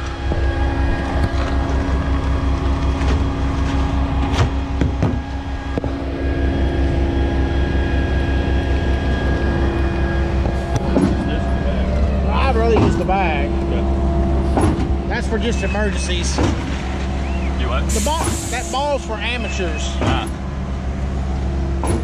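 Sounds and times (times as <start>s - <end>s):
diesel engine running under load: 0.0s - 22.0s.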